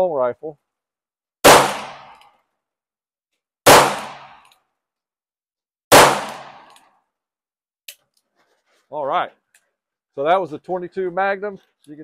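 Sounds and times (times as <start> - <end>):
revolver gunshots: 1.4 - 2.2, 3.6 - 4.4, 5.9 - 6.7.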